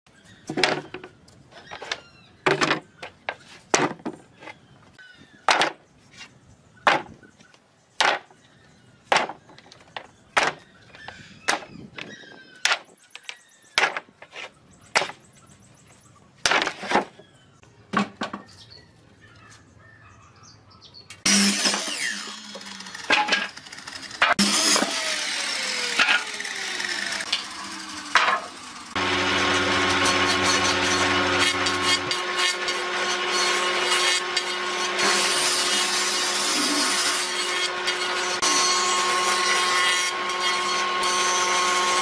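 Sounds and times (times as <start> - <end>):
tool striking wood: 9.1 - 9.5, 10.4 - 10.6, 11.5 - 12.1, 28.1 - 28.5.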